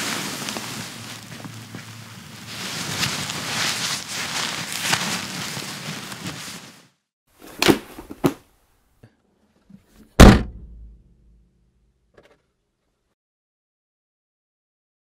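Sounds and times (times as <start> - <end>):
heavy booming thud: 10.2 - 11.4.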